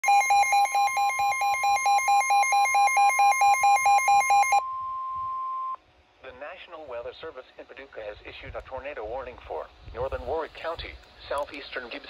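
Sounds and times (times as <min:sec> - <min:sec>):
rapid alarm beeping: 0:00.0 - 0:05.8
steady warning alarm tone: 0:00.0 - 0:05.8.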